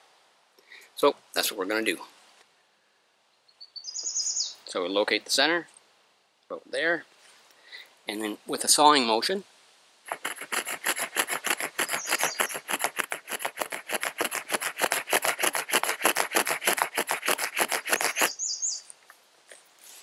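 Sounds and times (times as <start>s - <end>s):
saw rasping on wood: 10.1s - 18.4s.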